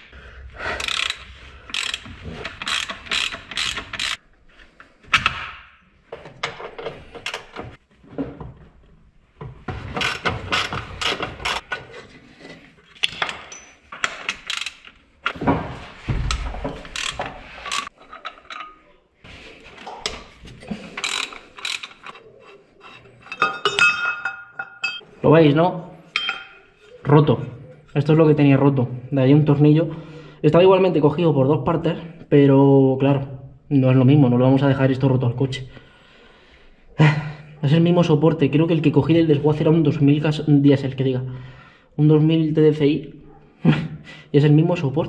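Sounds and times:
ratchet wrench clicking: 0:00.8 - 0:04.2, 0:14.3 - 0:14.9, 0:16.9 - 0:17.9, 0:21.0 - 0:22.1.

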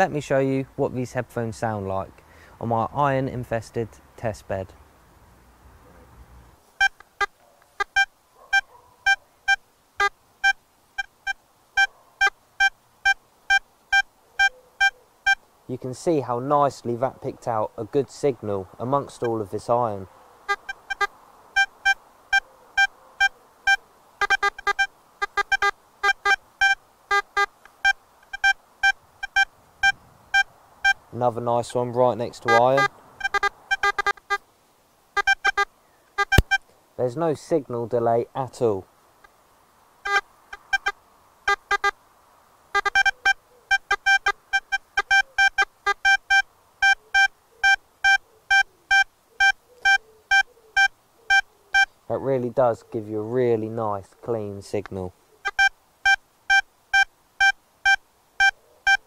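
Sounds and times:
metal detector beeps: 0:06.8 - 0:15.4, 0:19.2 - 0:19.4, 0:20.5 - 0:31.0, 0:32.4 - 0:34.4, 0:35.2 - 0:36.6, 0:40.0 - 0:42.0, 0:42.8 - 0:51.9, 0:55.4 - 0:59.0.

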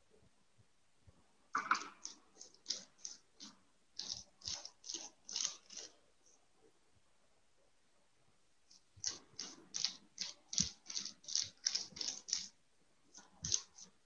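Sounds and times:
paintbrush dabbing on bubble wrap: 0:01.6 - 0:06.7, 0:08.6 - 0:14.0.

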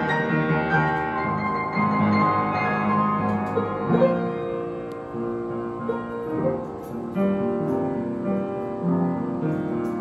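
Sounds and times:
upright piano playing chords: 0:00.0 - 0:10.0.

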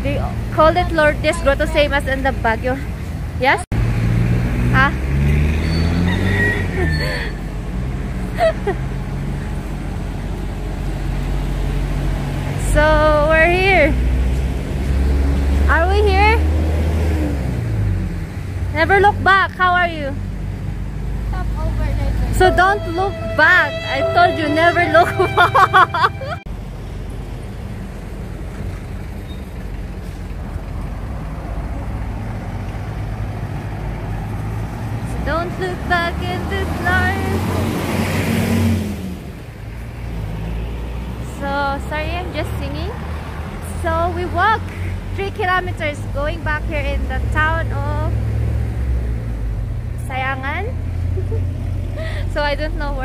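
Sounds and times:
bus diesel engine rumble: 0:00.0 - 0:53.0
brief high tone: 0:22.4 - 0:26.5.

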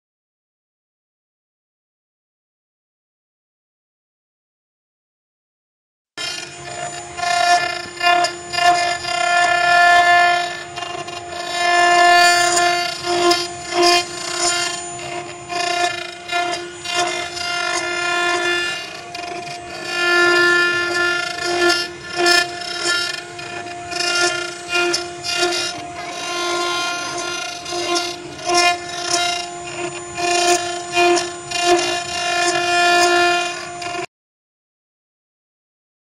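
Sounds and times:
engraving machine high-pitched whine: 0:06.2 - 0:34.1.

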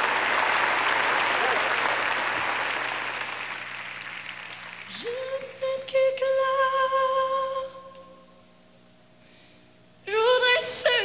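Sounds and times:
applause: 0:00.0 - 0:05.6
woman singing into a microphone: 0:04.9 - 0:08.2, 0:10.0 - 0:11.0.

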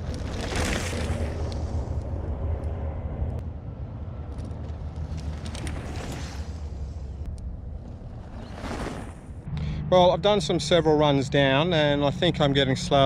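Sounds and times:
bike clicks and rattles: 0:04.2 - 0:06.7.

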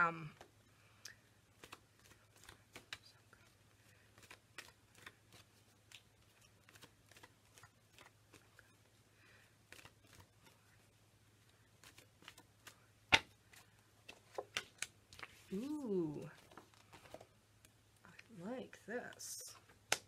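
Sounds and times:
cards being shuffled: 0:01.5 - 0:10.8, 0:11.4 - 0:17.7.

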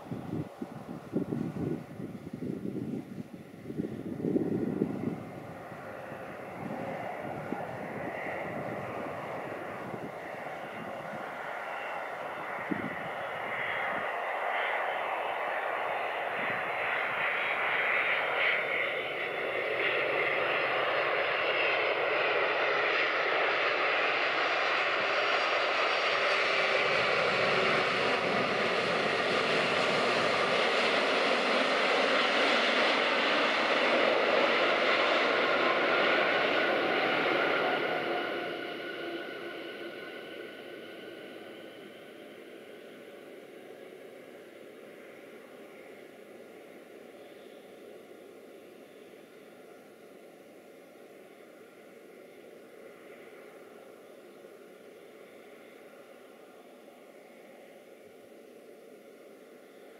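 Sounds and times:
jet engines running: 0:00.0 - 0:59.9.

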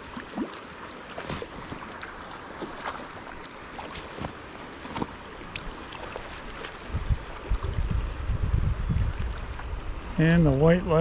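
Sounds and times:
small splashes and lapping: 0:00.0 - 0:08.0
creek water rushing: 0:00.0 - 0:11.0.

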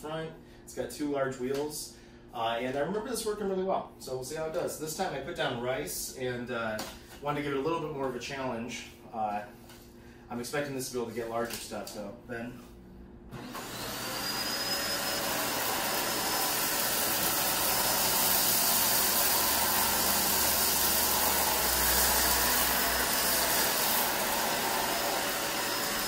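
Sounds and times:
vacuum cleaner motor whine: 0:13.3 - 0:26.0.

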